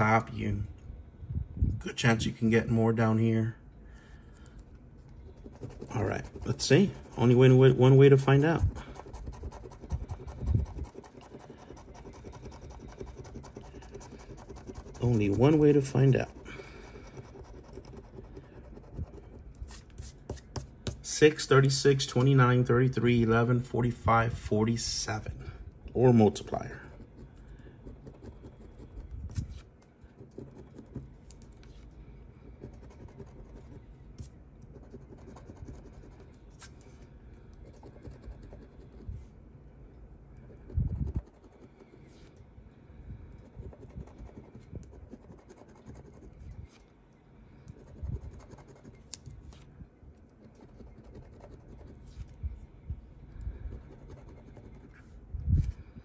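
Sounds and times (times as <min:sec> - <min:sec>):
scratching lottery ticket: 0:05.0 - 0:21.2, 0:26.2 - 0:36.9, 0:37.6 - 0:39.1, 0:40.5 - 0:42.2, 0:43.4 - 0:46.8, 0:47.7 - 0:49.6, 0:50.2 - 0:52.3, 0:53.6 - 0:55.1.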